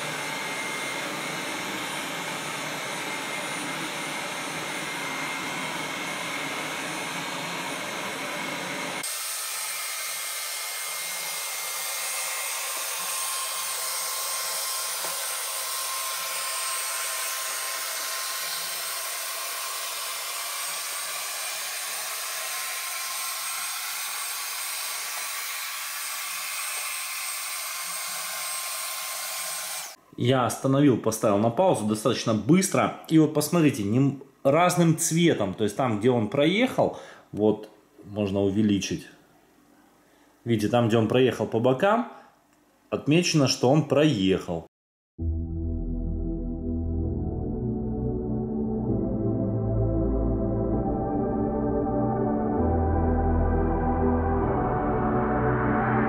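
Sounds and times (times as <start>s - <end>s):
robot vacuum rushing noise: 0.0s - 30.0s.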